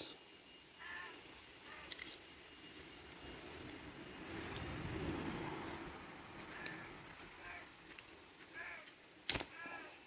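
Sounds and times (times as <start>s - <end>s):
scissor blades clicking: 4.2s - 9.5s
scissors cutting rubber hose: 4.2s - 9.6s.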